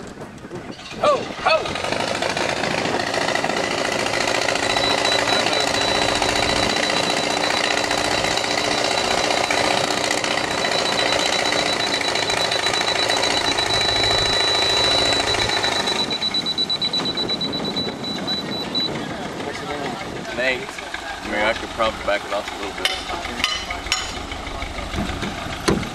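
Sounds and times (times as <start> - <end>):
steady machine noise: 1.2 - 25.9
laser receiver high-pitched tone: 4.6 - 18.9.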